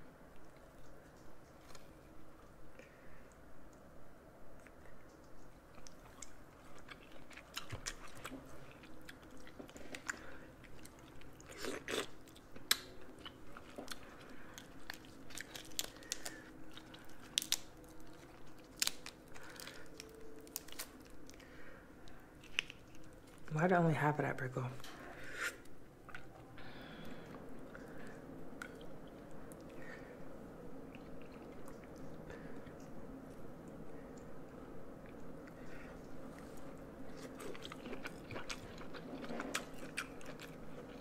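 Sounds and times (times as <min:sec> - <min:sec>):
person chewing: 0:04.6 - 0:23.5, 0:25.2 - 0:41.0.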